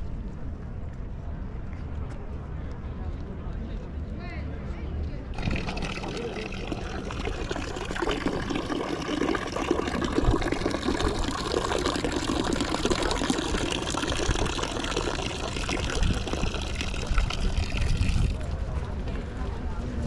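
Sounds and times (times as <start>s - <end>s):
water running from fountain spout: 5.4s - 18.6s.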